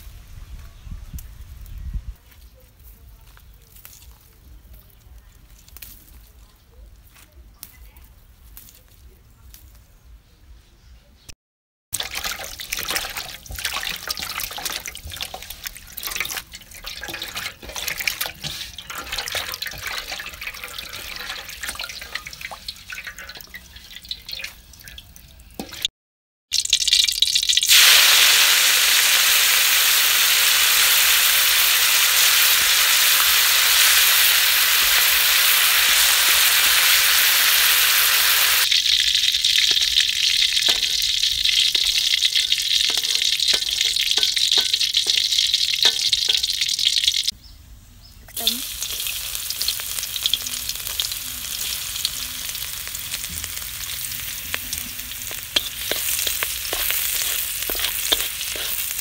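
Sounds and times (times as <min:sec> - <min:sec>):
leaves rustling and snapping: 0:02.2 - 0:09.9, 0:52.4 - 0:59.0
running water: 0:12.0 - 0:25.9.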